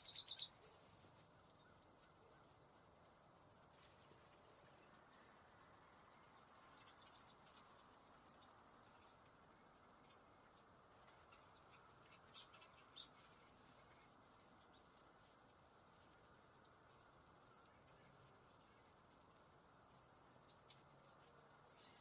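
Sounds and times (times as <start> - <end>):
high bird chirps: 0.0 - 2.4, 21.7 - 22.0
steady outdoor hiss: 0.0 - 22.0.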